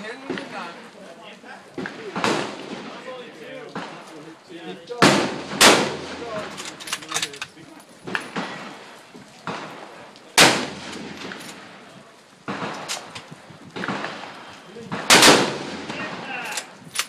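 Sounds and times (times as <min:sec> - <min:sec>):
rifle shots: 0:01.8 - 0:04.0, 0:05.0 - 0:07.2, 0:08.1 - 0:11.8, 0:12.5 - 0:17.0.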